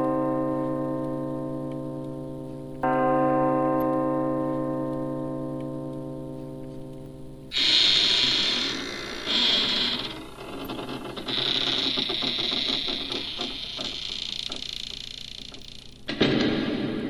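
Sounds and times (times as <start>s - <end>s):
harsh buzzing hissing noise: 7.5s - 17.0s
rapid mechanical ticking: 7.7s - 16.1s.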